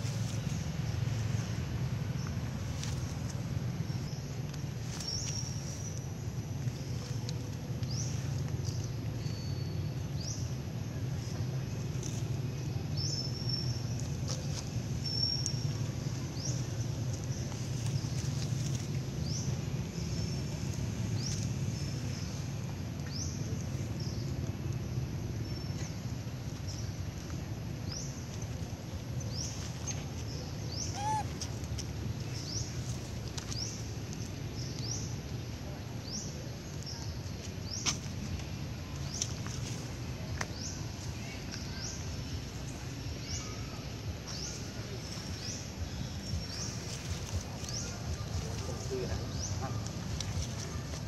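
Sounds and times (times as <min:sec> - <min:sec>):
steady low rumble: 0:00.0 - 0:51.0
bird chirping: 0:29.2 - 0:35.1
monkey squeak: 0:30.9 - 0:31.4.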